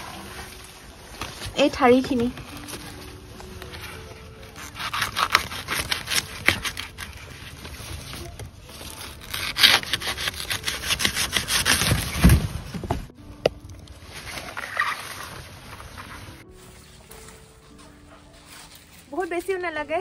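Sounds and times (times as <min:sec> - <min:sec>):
leaves rustling and scraping: 0:00.0 - 0:13.1, 0:13.8 - 0:20.0
stalks being sawn: 0:04.5 - 0:07.5, 0:08.3 - 0:12.4.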